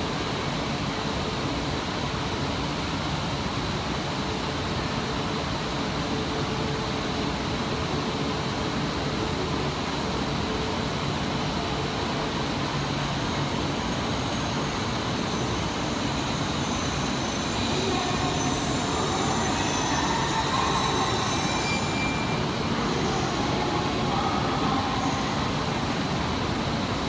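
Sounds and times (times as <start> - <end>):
train rumbling: 6.5 - 27.0
wheel whine and squeal: 12.7 - 23.3.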